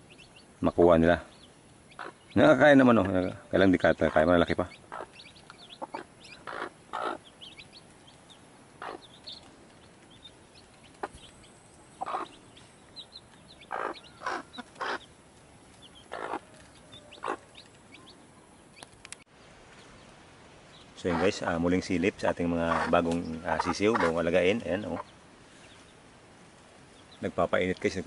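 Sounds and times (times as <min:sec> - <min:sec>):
chicks peeping: 0:00.0 - 0:19.0, 0:20.7 - 0:26.0
hen clucking: 0:01.9 - 0:15.2, 0:15.8 - 0:18.2, 0:21.0 - 0:25.2.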